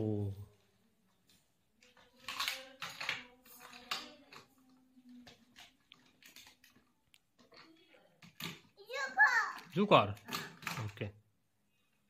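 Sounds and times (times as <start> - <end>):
plastic toys clacking together: 1.0 - 11.2.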